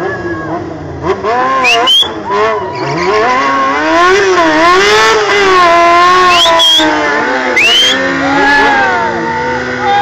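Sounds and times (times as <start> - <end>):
motorcycle engine revving high: 0.0 - 10.0
tyre squealing: 1.6 - 3.9, 6.1 - 9.2.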